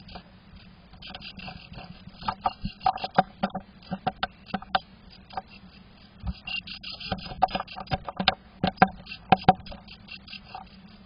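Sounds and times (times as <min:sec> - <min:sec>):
bird tapping on wood: 0:02.2 - 0:05.5, 0:07.0 - 0:09.9.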